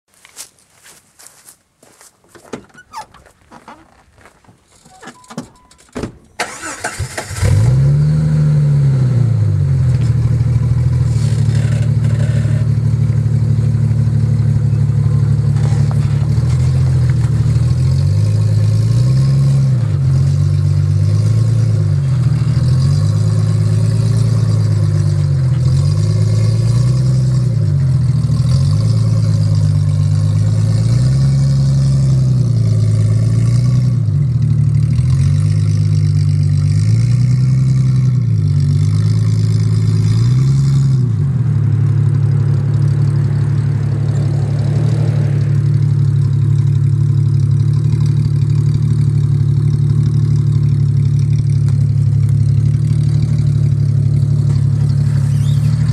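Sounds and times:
engine cranking and starting: 2.3 - 8.1, 10.9 - 12.8
loud exhaust engine revving: 6.5 - 13.8.

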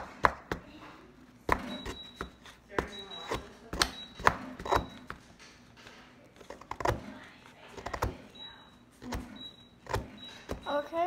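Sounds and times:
plastic hammer tapping plaster: 0.0 - 0.8, 1.4 - 5.4, 9.0 - 10.9.

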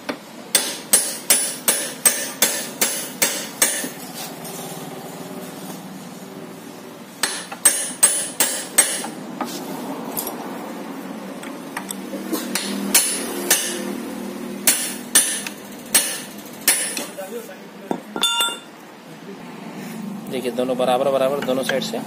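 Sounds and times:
hammer striking metal: 0.5 - 4.0, 7.2 - 9.2, 12.5 - 13.9, 14.6 - 17.1, 17.9 - 18.7.

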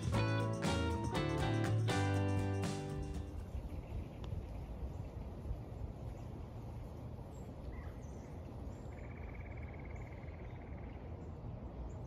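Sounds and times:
bird chirp: 7.2 - 12.0.

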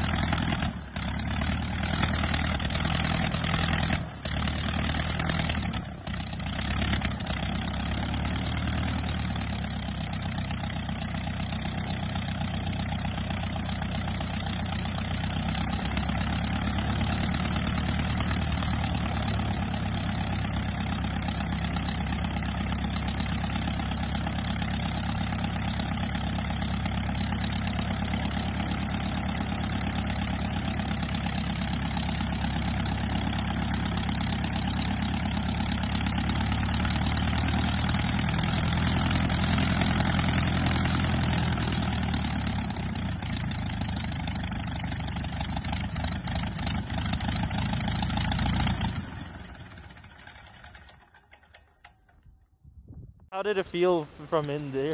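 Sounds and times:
aircraft engine running: 0.0 - 52.2, 53.4 - 54.9.

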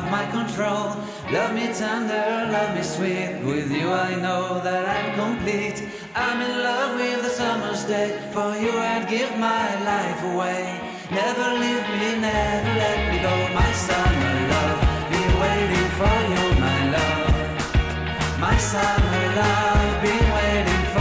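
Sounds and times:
song with sung vocals: 0.0 - 21.0.

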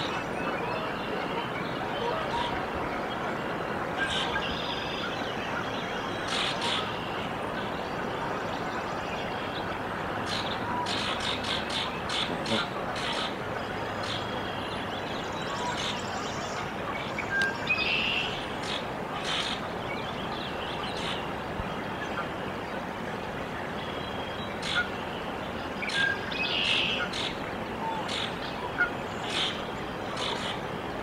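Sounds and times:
outdoor background hiss: 0.0 - 31.0
goslings peeping: 10.2 - 14.7, 23.9 - 25.0, 25.8 - 30.6.

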